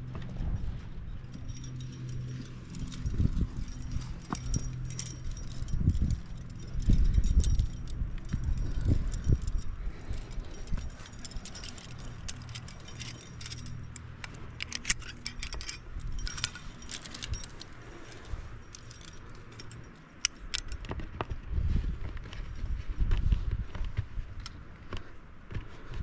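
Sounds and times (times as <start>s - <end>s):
low rumbling noise: 0.0s - 19.9s
climbing hardware clinking: 0.0s - 26.0s.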